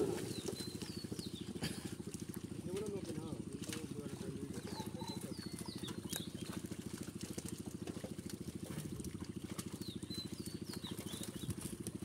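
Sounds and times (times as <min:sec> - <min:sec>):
small engine running: 0:00.0 - 0:12.0
bird chirps: 0:00.2 - 0:01.5, 0:09.8 - 0:11.5.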